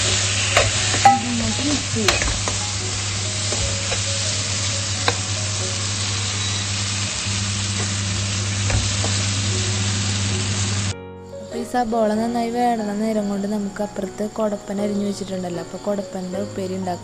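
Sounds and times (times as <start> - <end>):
food sizzling in a pan: 0.0 - 10.9
spoon tapping and scraping pan: 0.5 - 2.6.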